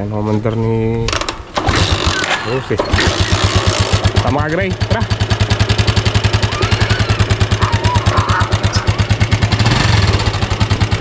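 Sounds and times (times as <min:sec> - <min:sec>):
motorcycle engine idling: 0:02.9 - 0:11.0.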